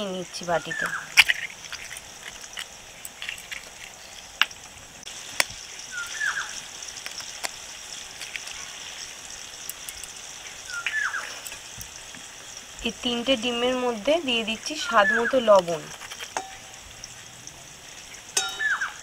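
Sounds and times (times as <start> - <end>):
potatoes sizzling in oil: 0.0 - 19.0
knife cracking eggshells: 0.8 - 4.7, 5.3 - 9.0, 9.6 - 11.8, 15.6 - 16.6.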